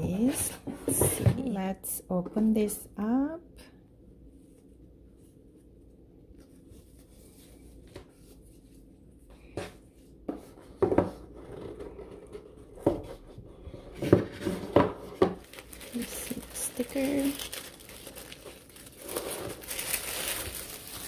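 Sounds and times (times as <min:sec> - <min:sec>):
ribbon rustling: 0:15.4 - 0:21.0.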